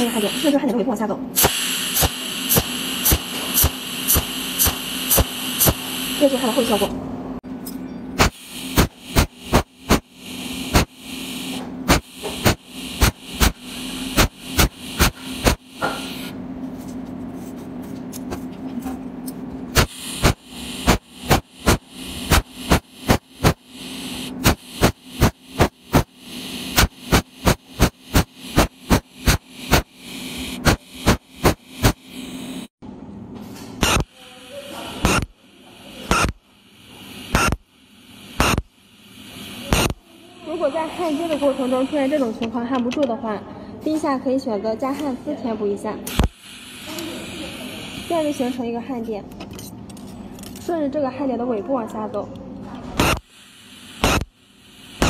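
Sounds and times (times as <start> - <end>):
steady electrical hum: 0.0 - 55.0
welding machine pulse snaps: 1.4 - 6.8, 8.2 - 16.3, 19.7 - 32.2, 33.8 - 34.2, 35.0 - 35.4, 36.1 - 36.4, 37.2 - 37.7, 38.4 - 38.7, 39.4 - 40.0, 41.0 - 42.3, 46.1 - 47.1, 53.0 - 55.0.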